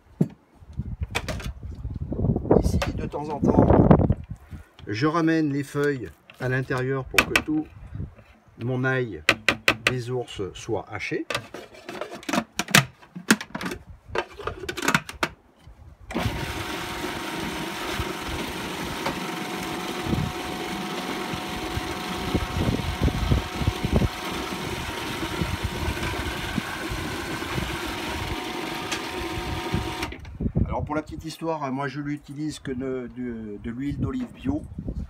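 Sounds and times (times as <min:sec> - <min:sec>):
food processor motor whine: 0:16.1 - 0:30.2.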